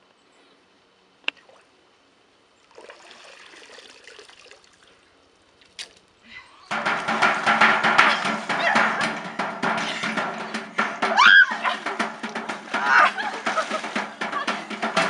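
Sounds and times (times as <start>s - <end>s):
loud music: 6.7s - 15.0s
sharp knock: 6.7s - 15.0s.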